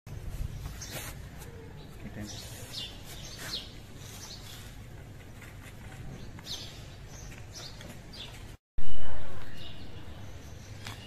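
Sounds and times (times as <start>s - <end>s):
small birds chirping: 0.1s - 11.0s.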